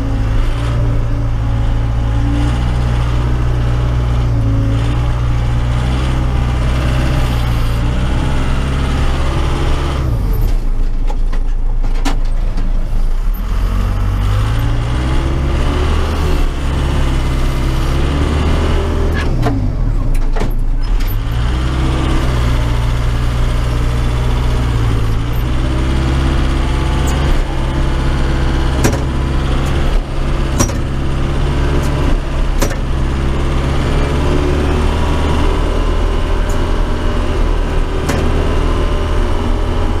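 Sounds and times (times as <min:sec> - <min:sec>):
diesel engine under load: 0:00.0 - 0:40.0
knocks and rattles: 0:18.7 - 0:40.0.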